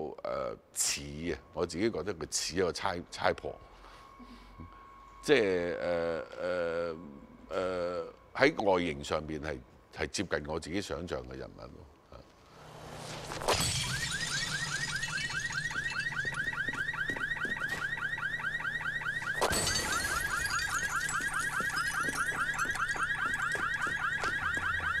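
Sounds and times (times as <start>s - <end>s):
car alarm chirping: 13.6s - 25.0s.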